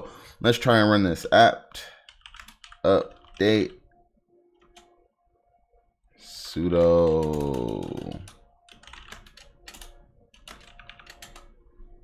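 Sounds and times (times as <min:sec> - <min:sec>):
typing on computer keyboard: 0:02.0 - 0:03.8, 0:04.6 - 0:05.0, 0:06.8 - 0:11.6.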